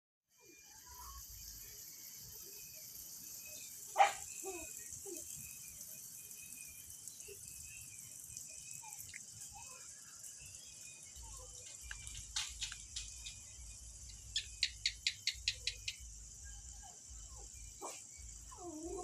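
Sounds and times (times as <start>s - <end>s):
night insects chirping: 0.3s - 19.0s.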